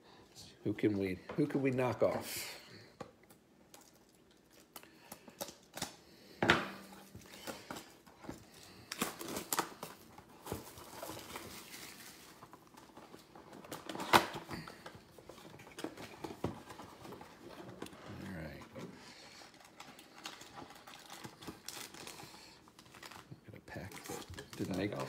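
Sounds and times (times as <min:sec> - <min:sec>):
plastic wrap tearing and crinkling: 0:06.9 - 0:14.7, 0:19.2 - 0:25.0.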